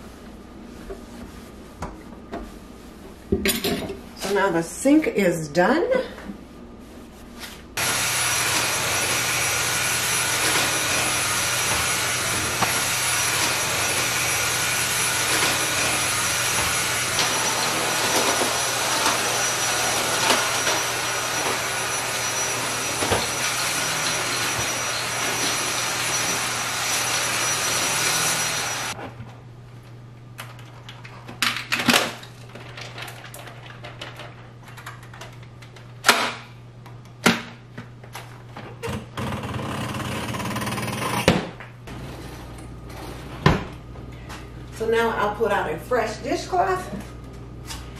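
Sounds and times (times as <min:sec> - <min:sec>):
vacuum cleaner running: 0:07.8 - 0:29.0.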